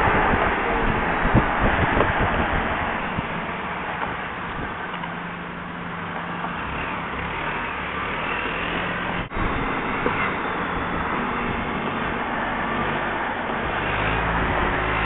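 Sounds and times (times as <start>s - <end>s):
wind rushing on microphone: 0.0s - 4.9s, 9.0s - 15.0s.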